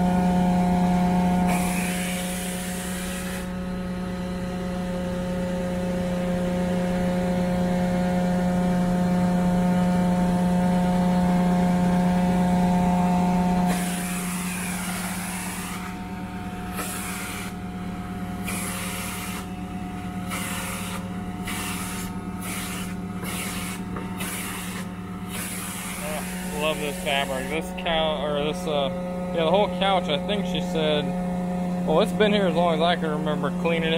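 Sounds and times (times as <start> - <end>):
carpet cleaning machine humming: 0.0 - 33.9
vacuum tool rushing hiss: 1.5 - 3.5, 13.7 - 16.0, 16.7 - 17.6, 18.4 - 19.5, 20.3 - 27.6.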